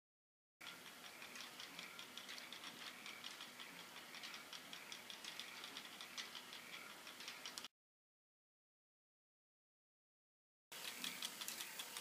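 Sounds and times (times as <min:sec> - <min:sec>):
plastic clock ticking: 0:00.6 - 0:07.7, 0:10.7 - 0:12.0.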